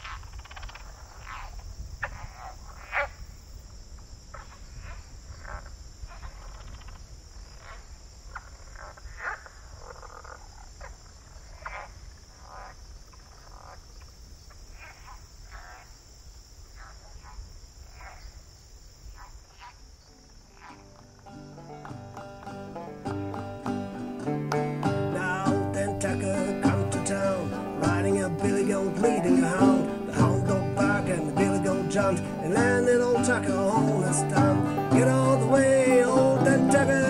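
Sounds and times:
frogs calling: 0.0 - 37.0
insect trill: 0.0 - 37.0
banjo music: 20.6 - 37.0.

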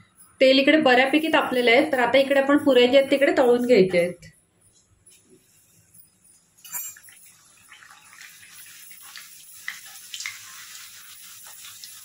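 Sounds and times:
dough frying in hot oil: 5.4 - 12.0.

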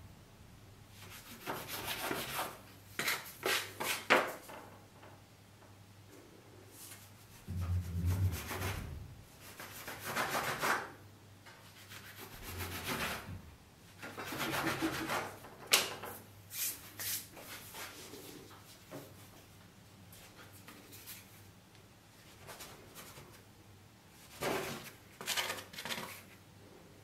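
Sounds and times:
dough scraper scraping on wood: 14.0 - 15.4.

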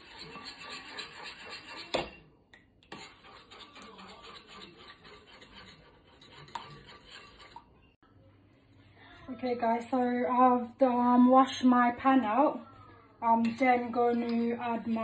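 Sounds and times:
spoon stirring and scraping bowl: 0.0 - 8.0, 13.2 - 15.0.

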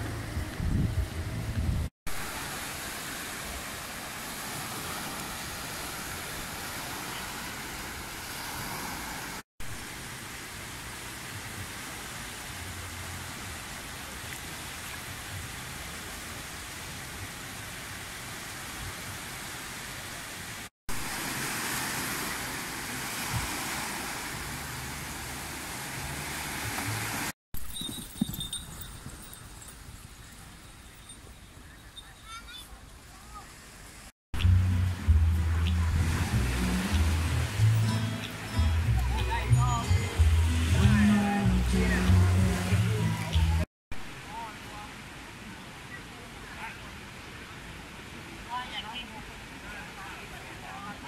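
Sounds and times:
wind buffeting microphone: 0.0 - 1.9
small waves washing onto sand: 2.1 - 27.4, 34.9 - 43.5.

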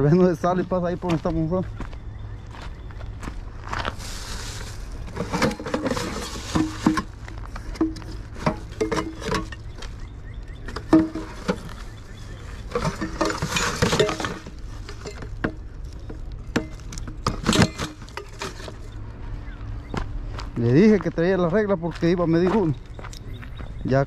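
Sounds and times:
footsteps on gravel: 0.0 - 13.8, 18.7 - 24.0
rustling scrape: 3.6 - 9.6, 11.1 - 15.4
knocks and clinks of fishing gear: 5.2 - 9.9.

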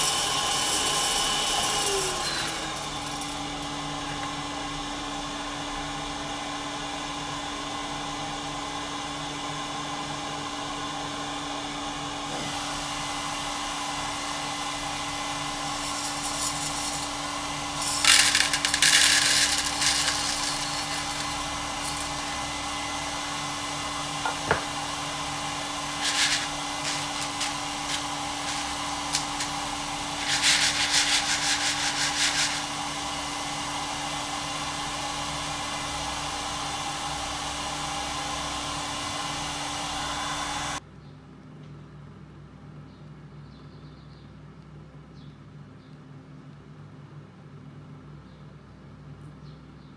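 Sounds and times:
coffee beans rattling into tray: 0.0 - 3.5, 15.5 - 22.5, 25.8 - 32.8
coffee roaster humming: 0.0 - 40.8.

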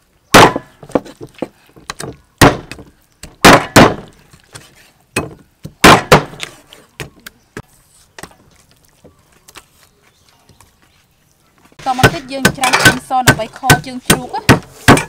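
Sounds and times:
cleaver chopping on wooden block: 0.3 - 1.1, 1.9 - 4.1, 5.2 - 7.1, 11.9 - 15.0.

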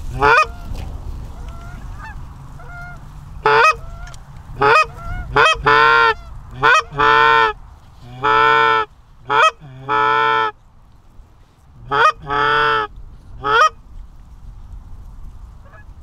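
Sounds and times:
goose calls clucks and honks: 0.0 - 0.8, 1.4 - 10.6, 11.8 - 13.8
distant geese honking: 0.0 - 10.6, 11.4 - 13.9, 15.6 - 16.0.

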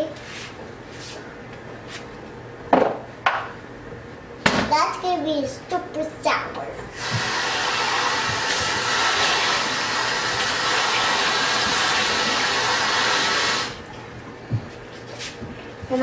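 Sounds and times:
kitchen tap running: 6.9 - 14.0.

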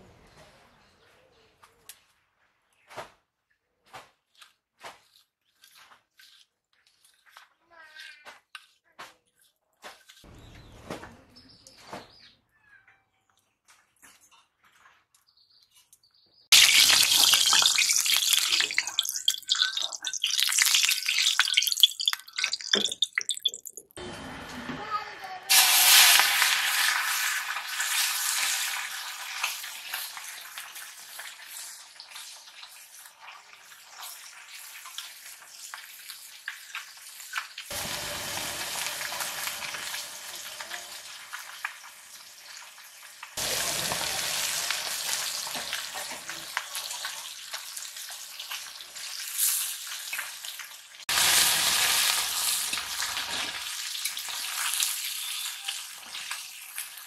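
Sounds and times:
metal spatula stirring: 4.3 - 10.3, 16.7 - 23.8
fish sizzling in hot oil: 16.5 - 23.8, 25.5 - 57.0.

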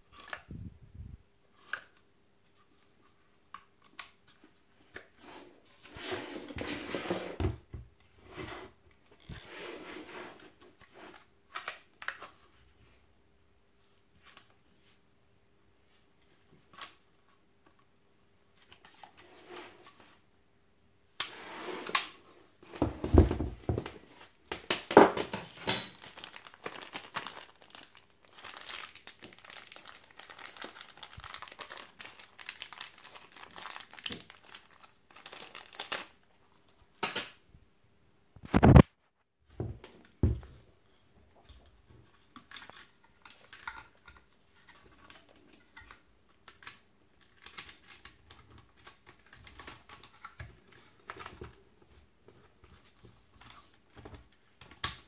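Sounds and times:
plastic crinkling and rustling: 23.1 - 36.8.

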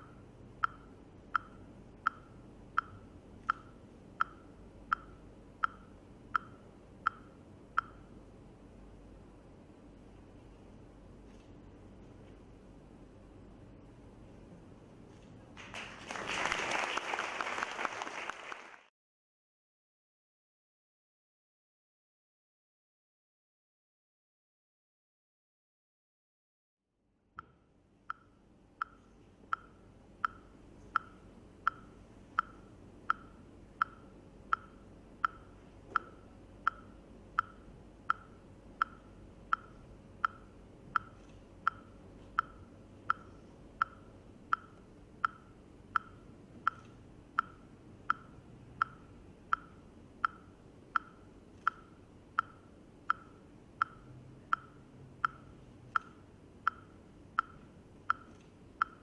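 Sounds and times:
metronome ticking: 0.0 - 8.2, 27.4 - 59.0.

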